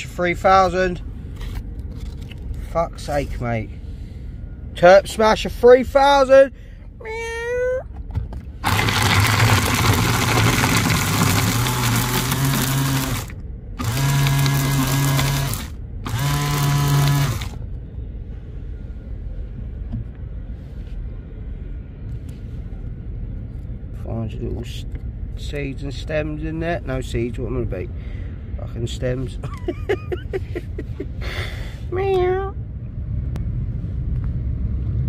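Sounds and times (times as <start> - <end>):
electric herb grinder running: 8.6 - 17.6.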